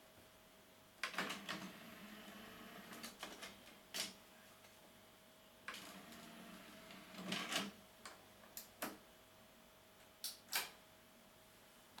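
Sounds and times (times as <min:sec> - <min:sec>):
disc tray motor whirr: 0:01.4 - 0:03.0, 0:05.7 - 0:07.6.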